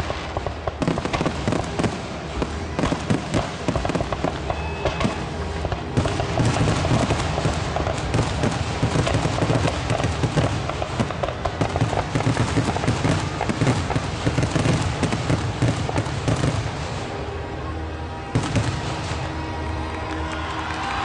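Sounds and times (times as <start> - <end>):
fireworks booms and crackling: 0.0 - 21.0.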